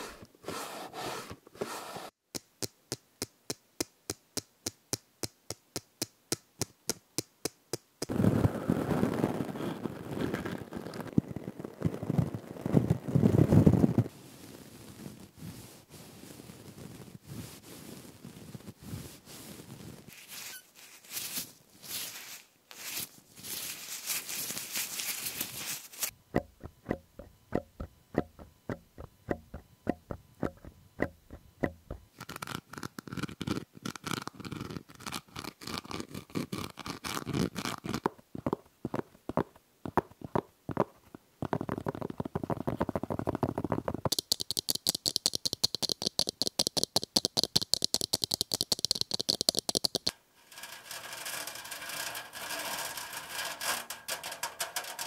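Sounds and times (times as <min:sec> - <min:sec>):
rubbing sound: 0:00.0 - 0:02.2, 0:14.7 - 0:26.2
rustling: 0:08.1 - 0:26.2
sharp tapping: 0:26.3 - 0:32.1, 0:44.1 - 0:50.1.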